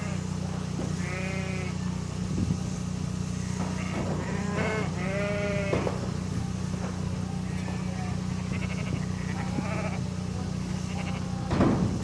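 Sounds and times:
sheep bleating: 0.0 - 0.3, 0.9 - 1.9, 3.4 - 6.0, 7.4 - 10.1, 10.7 - 11.5
steady low rumble: 0.0 - 12.0.

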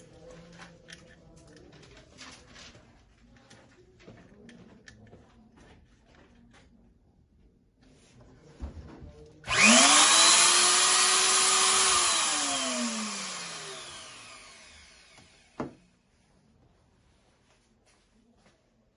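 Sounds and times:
grain mill motor whining: 9.5 - 15.5.

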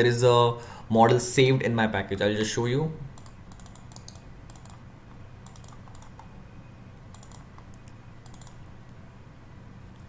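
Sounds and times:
low steady hum: 0.0 - 10.0
keyboard and mouse clicks: 3.2 - 4.8, 5.4 - 6.3, 7.0 - 8.7.

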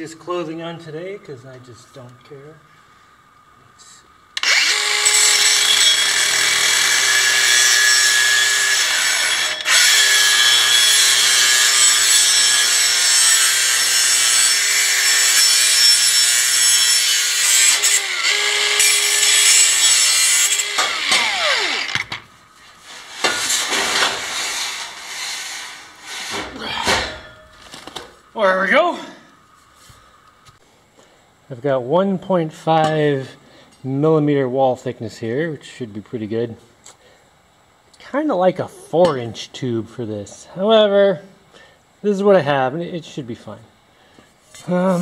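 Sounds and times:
grinder cutting metal: 4.4 - 22.2, 22.8 - 26.5.

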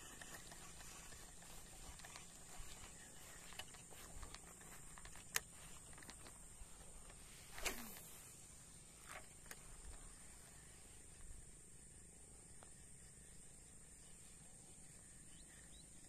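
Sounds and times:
small clicks: 0.0 - 8.2.

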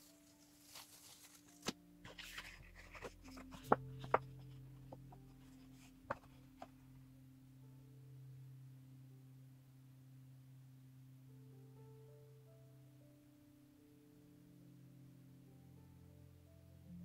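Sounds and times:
paper rustling and crackling: 0.0 - 4.6.

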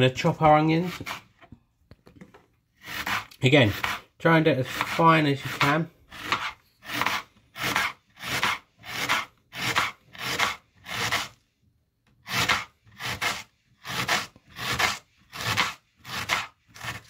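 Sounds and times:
knife slicing onion on board: 0.5 - 1.4, 2.8 - 11.4, 12.3 - 17.0.

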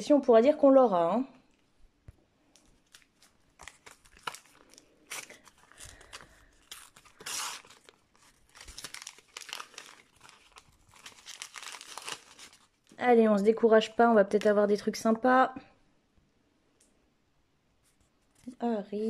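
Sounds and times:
wrapper crinkling: 2.6 - 13.0
wrapper ripping: 2.6 - 13.0.

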